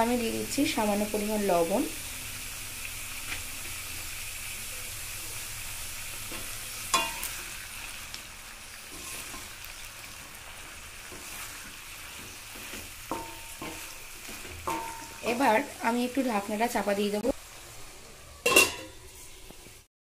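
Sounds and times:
food sizzling in oil: 0.0 - 19.9
spatula scraping pan: 8.9 - 15.4, 17.6 - 19.8
spatula knocking on pan: 12.2 - 15.2.

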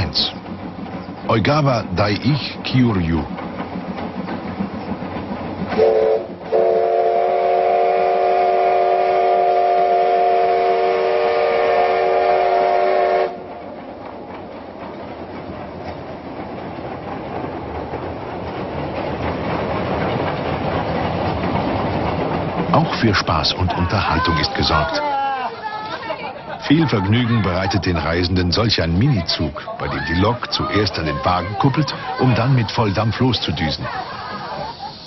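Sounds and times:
train rumble and clatter: 0.0 - 35.0
steam locomotive whistle: 5.7 - 13.4.

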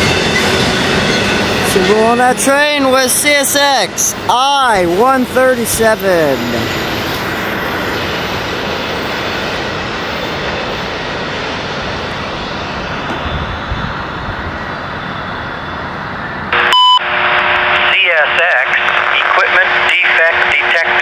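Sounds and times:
train wheels rushing on rails: 0.0 - 16.6.

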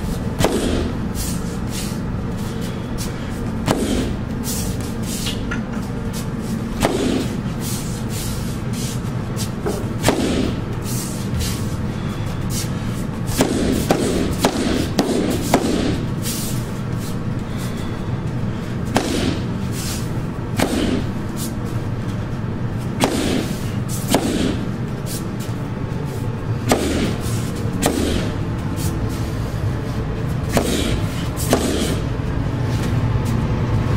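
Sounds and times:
stick whacking heavy bag: 0.4 - 1.3, 3.6 - 5.4, 6.7 - 11.7, 13.3 - 17.2, 18.8 - 21.6, 22.9 - 25.2, 26.6 - 29.0, 30.4 - 32.1.

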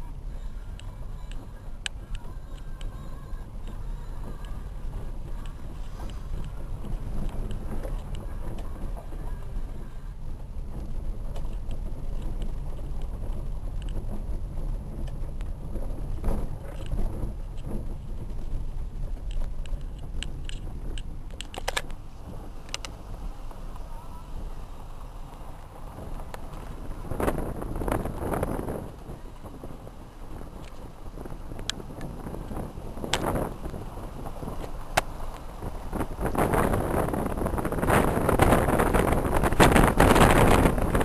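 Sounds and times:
car engine and tyres rumbling: 0.0 - 41.0
gravel clicks and knocks: 10.8 - 23.9.

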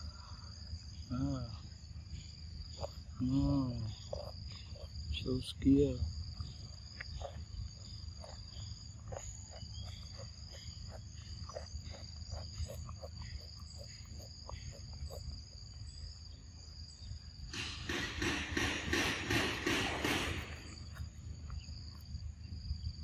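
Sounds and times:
high insect drone: 0.0 - 23.0
monkey chewing fruit: 2.5 - 3.2, 3.8 - 16.2.

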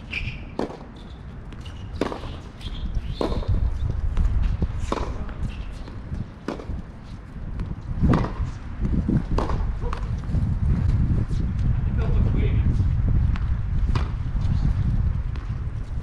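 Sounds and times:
tennis racket strikes and bounces: 0.6 - 0.9, 1.6 - 3.5, 4.8 - 6.8, 8.0 - 8.5.

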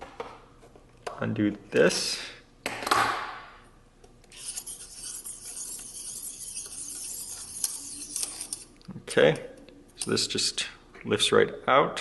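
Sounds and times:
short scrape: 4.3 - 8.6.

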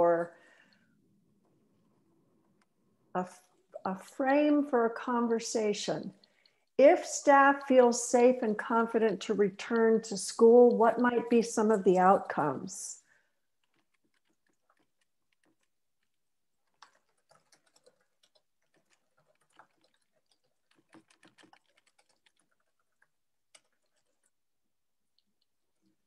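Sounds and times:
typing on computer keyboard: 13.6 - 24.3.

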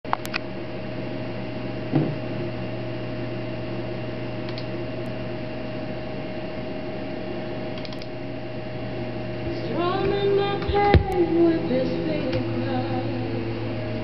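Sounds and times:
electrical hum and hiss: 0.1 - 14.0
faint computer mouse clicks: 7.8 - 8.1.

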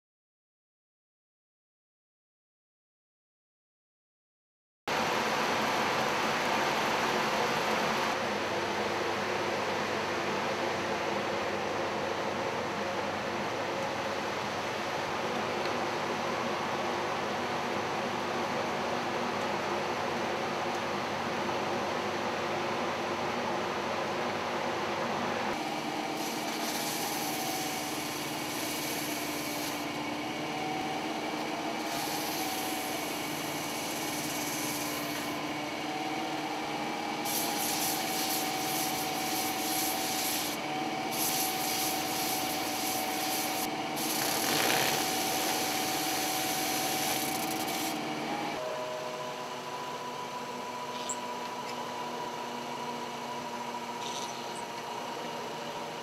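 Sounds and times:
belt sander motor hum: 25.6 - 48.6
gritty sanding hiss: 26.2 - 29.8, 37.3 - 47.9.

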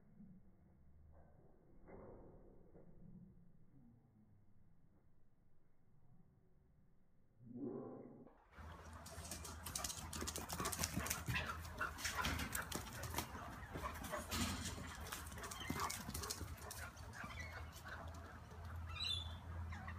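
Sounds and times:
dogs play-fighting: 8.6 - 19.0.

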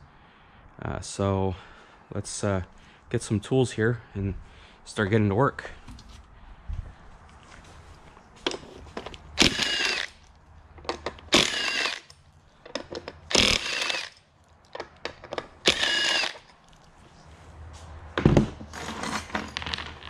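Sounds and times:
tools and parts clinking: 7.9 - 17.0, 18.2 - 20.0
power tool spinning bolts: 9.4 - 16.5.

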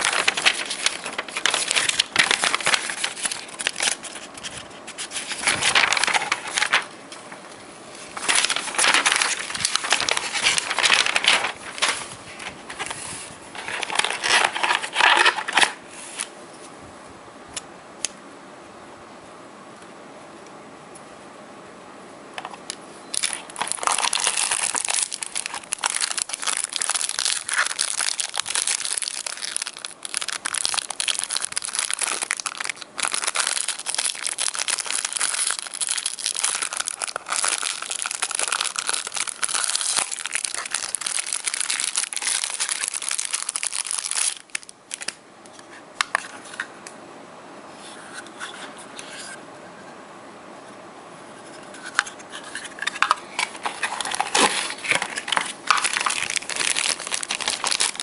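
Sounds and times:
plastic wrapping crinkling: 0.0 - 15.8, 23.1 - 45.2, 52.4 - 58.0.

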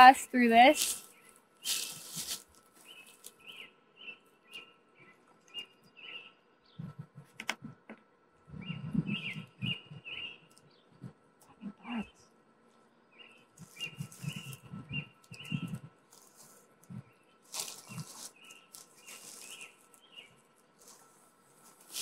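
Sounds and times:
small bird chirping: 0.6 - 7.8, 8.5 - 12.4, 13.1 - 22.0
dull low thumps: 6.8 - 10.2, 13.9 - 16.0.

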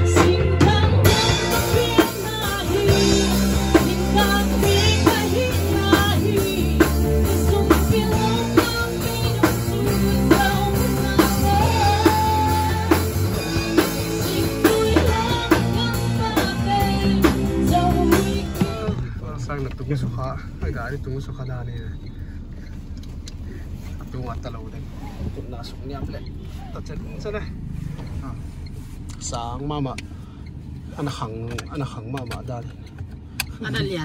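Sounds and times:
woman singing into microphone: 0.0 - 19.0
drum kit steady beat: 0.0 - 19.5
electric bass low notes: 0.0 - 32.5.

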